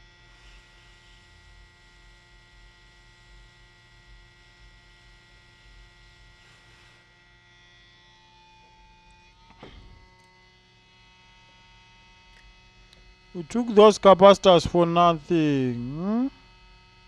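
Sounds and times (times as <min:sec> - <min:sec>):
faint electrical hum: 0:12.2 - 0:16.9.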